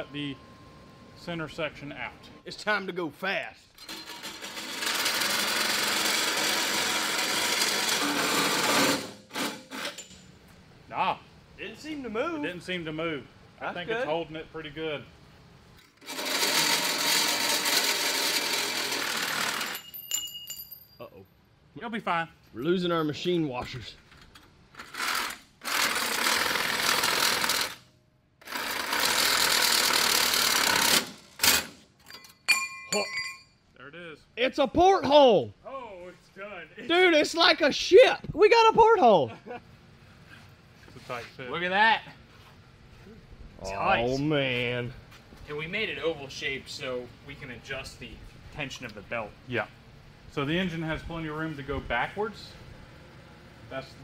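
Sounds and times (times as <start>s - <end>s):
reciprocating saw cutting steel: 3.9s - 10.1s, 16.0s - 19.8s, 24.8s - 27.8s, 28.4s - 31.8s
reciprocating saw cutting steel tube: 16.0s - 19.7s, 28.4s - 31.7s.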